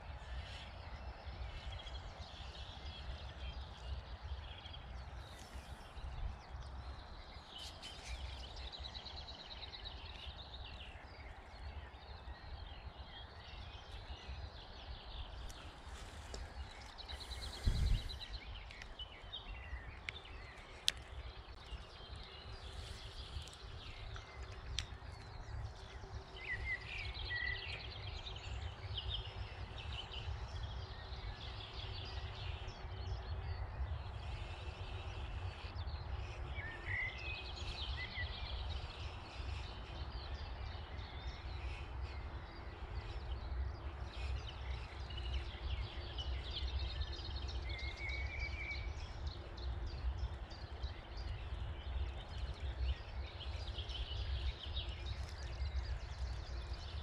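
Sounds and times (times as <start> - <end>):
small birds singing: 0.0 - 57.0
wind rumbling on microphone: 0.0 - 57.0.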